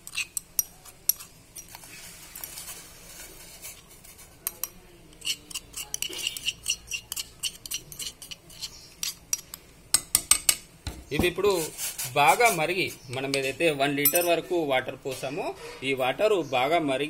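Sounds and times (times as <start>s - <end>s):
spoon clinking and scraping metal: 0.0s - 10.6s, 11.5s - 14.5s.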